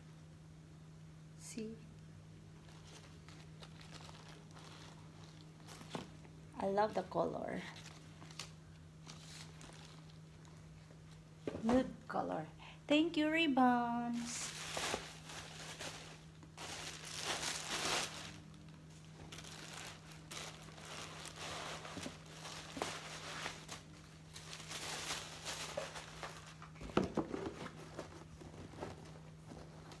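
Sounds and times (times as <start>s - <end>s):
packaging wrap crinkling: 2.6s - 6.4s, 7.0s - 10.8s, 14.3s - 26.8s.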